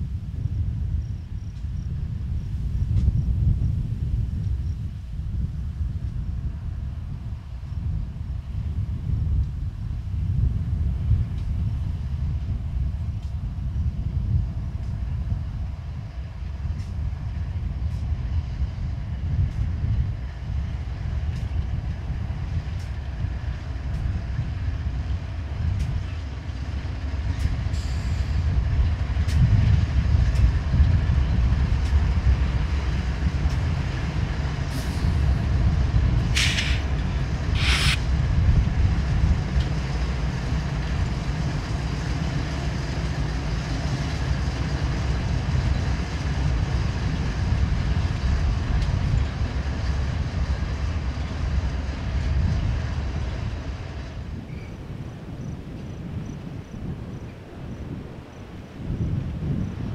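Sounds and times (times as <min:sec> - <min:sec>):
diesel locomotives rumbling: 0:00.0 - 0:59.9
rail cars rolling by: 0:00.0 - 0:59.9
wind buffeting the microphone: 0:00.0 - 0:59.9
short hissing bursts: 0:36.4 - 0:36.9, 0:37.5 - 0:38.0.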